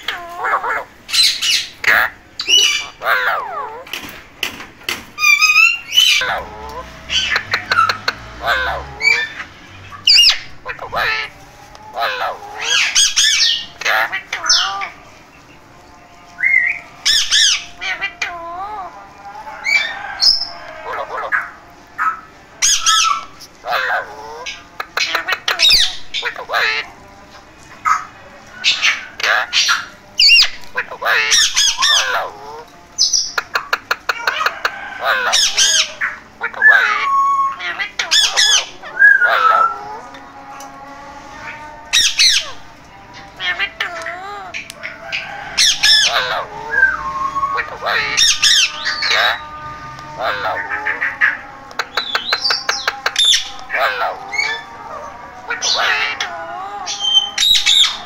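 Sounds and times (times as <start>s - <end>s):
parakeets squawking: 0.0s - 58.0s
falling whistle: 46.6s - 47.6s.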